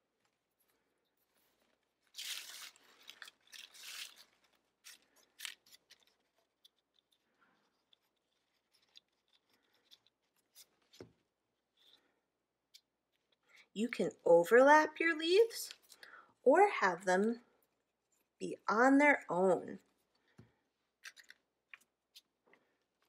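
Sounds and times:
dry leaves rustling and crinkling: 0:02.1 - 0:06.1.

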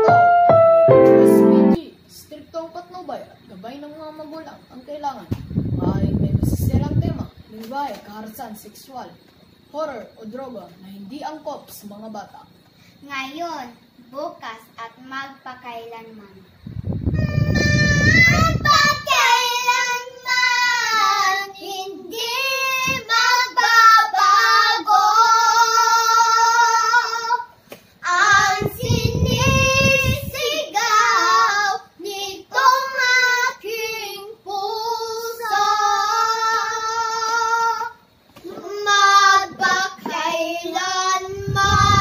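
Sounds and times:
girls singing unaccompanied: 0:17.2 - 0:42.0.

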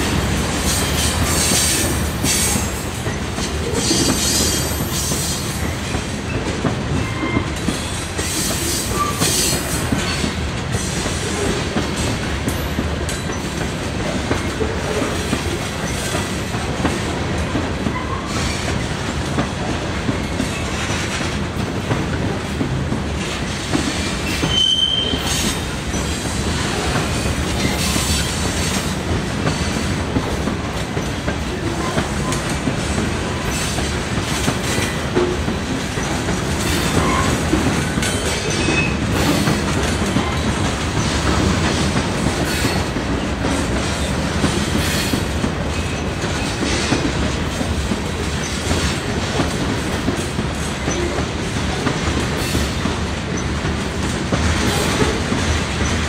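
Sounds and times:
freight train wheels rumbling: 0:00.0 - 0:56.0
wheel squeal: 0:24.2 - 0:25.5.

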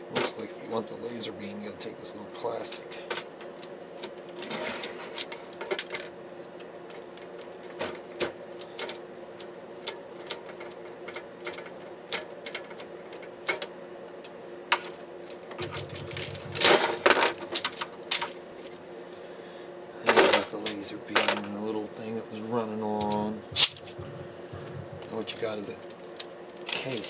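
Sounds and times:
low hum: 0:15.5 - 0:17.4, 0:23.3 - 0:26.6
rattling knocks: 0:23.4 - 0:25.5.

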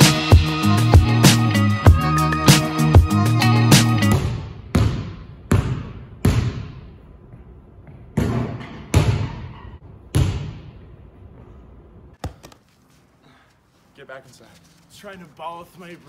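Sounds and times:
basketball bouncing in a gym: 0:04.1 - 0:11.6.

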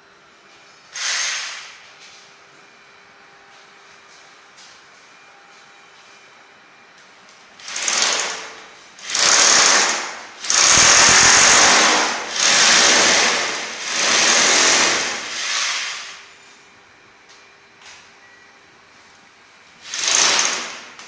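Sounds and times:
hammer drill boring into masonry: 0:01.0 - 0:01.6, 0:07.6 - 0:16.2, 0:19.9 - 0:20.8.

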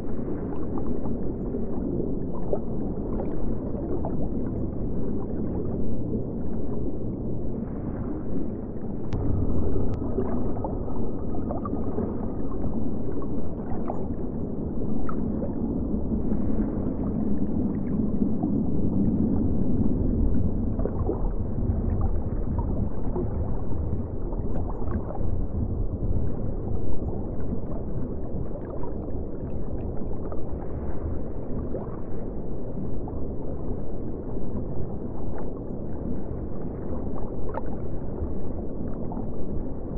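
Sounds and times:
muffled low rumble of water: 0:00.0 - 0:39.9
faint bubbling: 0:00.2 - 0:30.8.

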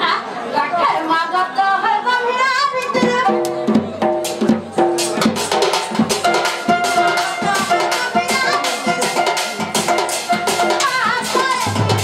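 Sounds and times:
folk band playing: 0:02.8 - 0:12.0
dhol drum strokes: 0:02.9 - 0:12.0.

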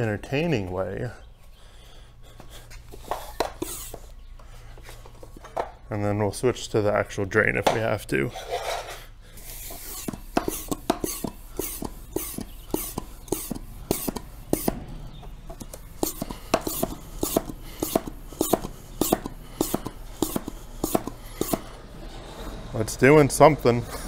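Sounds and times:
hand pump clicking and hissing: 0:02.9 - 0:04.1, 0:09.4 - 0:14.8, 0:15.5 - 0:21.8.

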